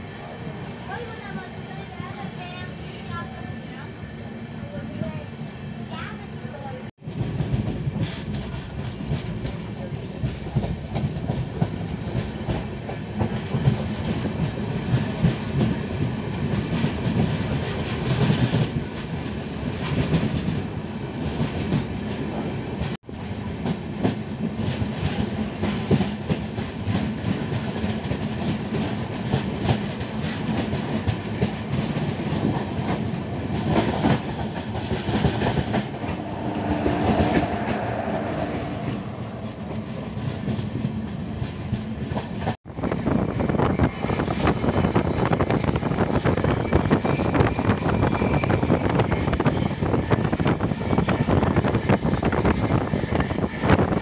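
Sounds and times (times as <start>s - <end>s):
steady train rumble: 0.0s - 54.0s
train wheels clattering over rail joints: 7.0s - 23.0s, 23.6s - 42.6s.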